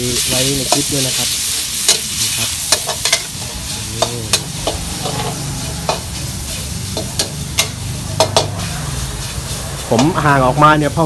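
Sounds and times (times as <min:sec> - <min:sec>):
oil sizzling: 0:00.0 - 0:11.0
metal spatula clanking on wok: 0:01.8 - 0:08.7.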